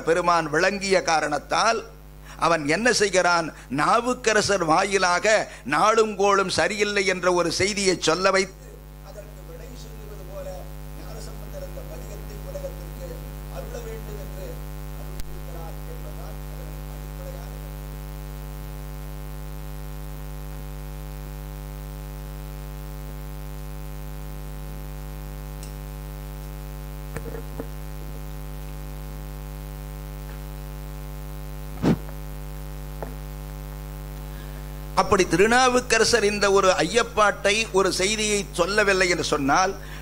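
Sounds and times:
electrical mains hum: 0.0 - 40.0
microphone stand knocks: 27.1 - 27.8.

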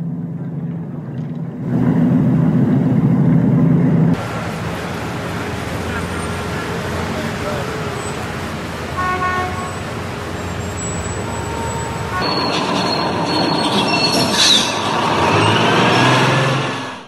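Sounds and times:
street traffic noise: 0.0 - 17.0
vehicle horn toot: 5.8 - 13.2
thin high squeals: 9.6 - 17.0.

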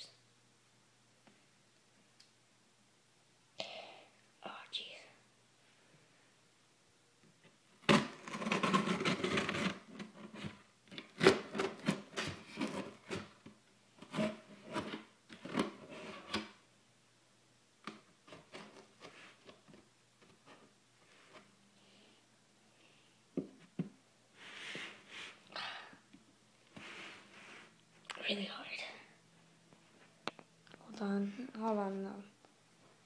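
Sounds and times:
scissors scraping through tape: 7.9 - 9.8
cardboard rubbing and knocking: 7.9 - 13.4.

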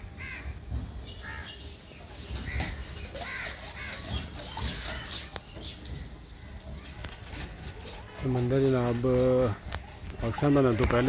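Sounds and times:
crows cawing: 0.2 - 0.6, 2.4 - 5.3.

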